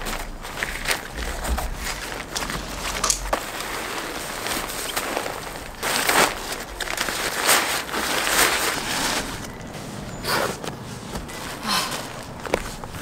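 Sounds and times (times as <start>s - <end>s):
nylon gear rustling: 0.0s - 13.0s
footsteps on wooden deck: 9.5s - 13.0s.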